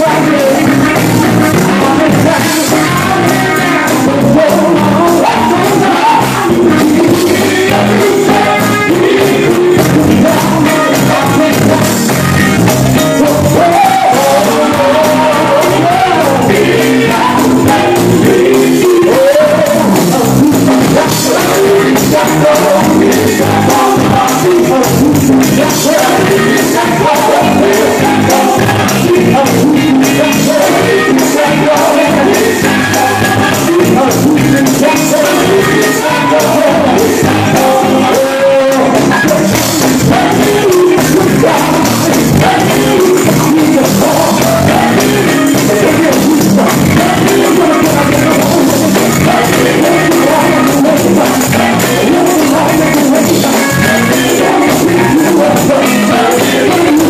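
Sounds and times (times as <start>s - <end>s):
drums: 0.0s - 57.0s
electric guitar: 0.0s - 57.0s
vocal group singing gospel: 0.0s - 57.0s.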